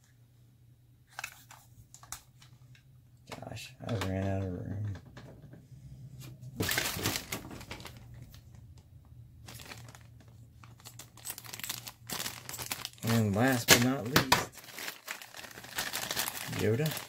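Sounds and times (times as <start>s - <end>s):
plastic packaging crinkling: 6.6s - 8.7s, 9.4s - 17.0s.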